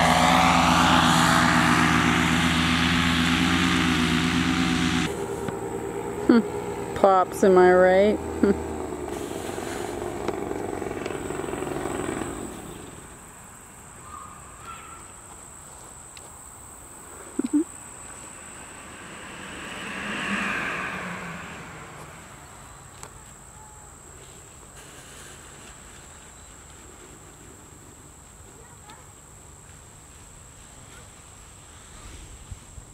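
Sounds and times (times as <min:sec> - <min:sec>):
loud engine noise: 0:00.0 - 0:13.4, 0:17.4 - 0:22.7
paramotor engine passing overhead: 0:00.0 - 0:13.4, 0:17.9 - 0:22.8
crickets trilling: 0:05.1 - 0:28.4.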